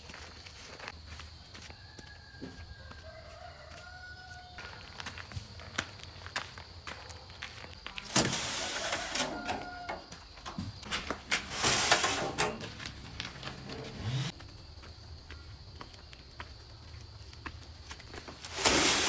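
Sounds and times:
sand pouring onto concrete: 8.0s - 9.8s, 11.3s - 12.9s, 18.4s - 19.0s
metal wheelbarrow rattling: 8.0s - 14.3s, 18.3s - 19.0s.

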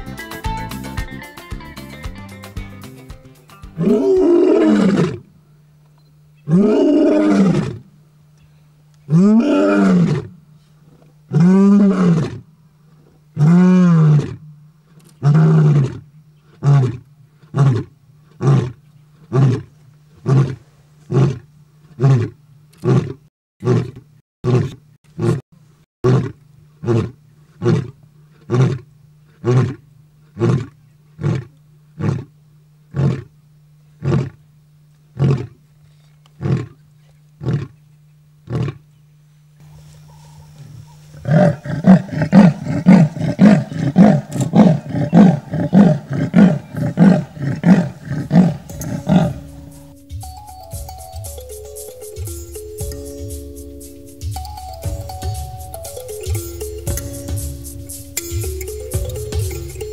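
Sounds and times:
lion grunting: 3.8s - 5.3s, 6.4s - 7.8s, 9.1s - 10.4s, 15.0s - 21.4s, 26.1s - 32.3s, 32.9s - 33.3s, 34.0s - 34.4s, 35.2s - 35.6s, 36.4s - 36.8s, 37.4s - 37.8s, 38.4s - 38.9s, 39.8s - 50.0s
lion roaring: 3.8s - 5.3s, 6.5s - 7.9s, 9.1s - 10.4s, 11.3s - 12.4s, 13.0s - 14.4s, 15.2s - 25.4s, 26.1s - 32.3s, 32.9s - 33.3s, 34.0s - 34.4s, 35.2s - 35.6s, 36.4s - 36.8s, 37.4s - 37.8s, 38.4s - 38.8s, 40.1s - 50.0s.

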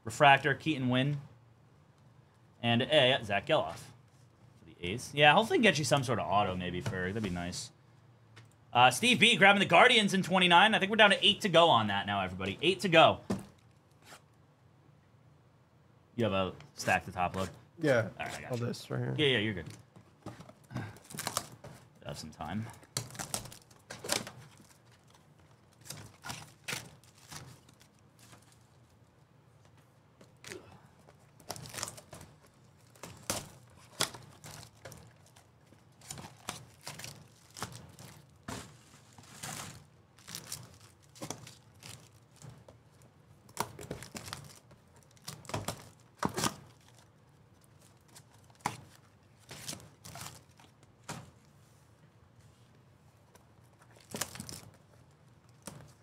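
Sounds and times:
card packs tearing open: 21.0s - 21.6s, 22.9s - 28.5s, 31.3s - 38.5s, 39.1s - 42.5s, 43.5s - 47.1s, 53.9s - 54.8s
foil wrappers crinkling: 22.9s - 29.0s, 31.3s - 50.8s.

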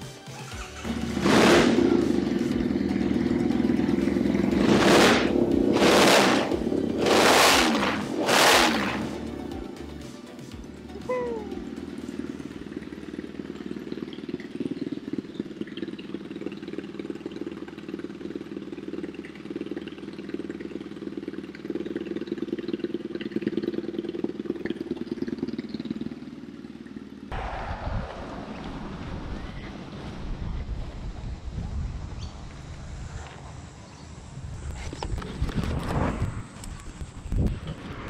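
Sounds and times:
motorcycle engine idling: 0.0s - 27.4s, 28.6s - 38.0s
wind buffeting microphone: 27.3s - 38.0s.

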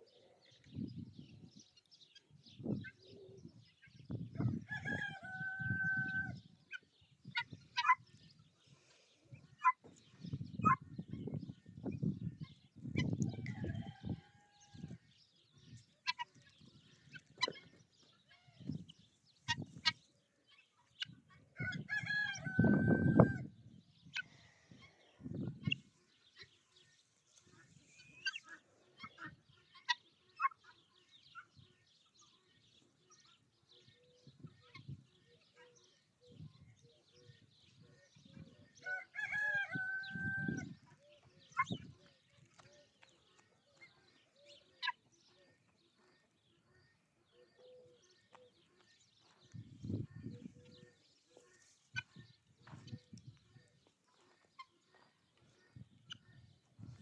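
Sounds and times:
chickens clucking and chirping: 0.0s - 57.0s
rooster crowing: 21.6s - 23.4s, 38.8s - 40.7s.

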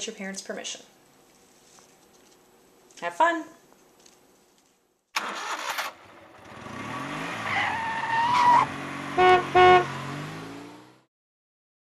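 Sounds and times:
car engine starting and revving: 5.2s - 11.1s
car horn honking: 9.1s - 10.0s.

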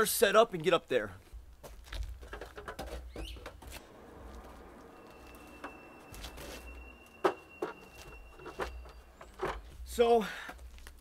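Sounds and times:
stepladder clanking: 5.2s - 10.0s.

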